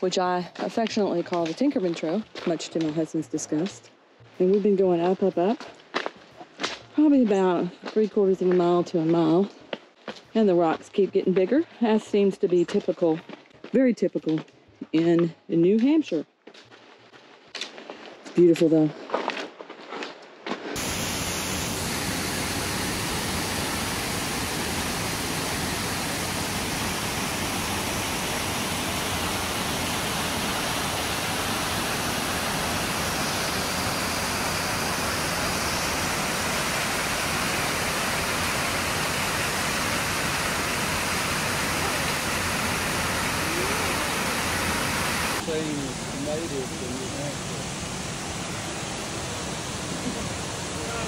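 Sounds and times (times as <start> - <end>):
water rushing over rocks: 20.8 - 51.0.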